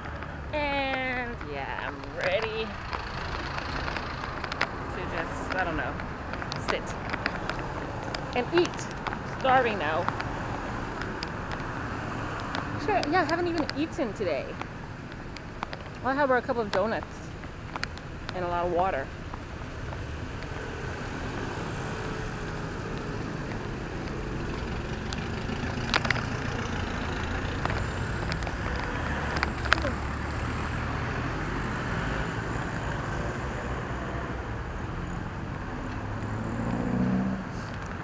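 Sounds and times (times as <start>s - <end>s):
road traffic passing: 0.0s - 38.0s.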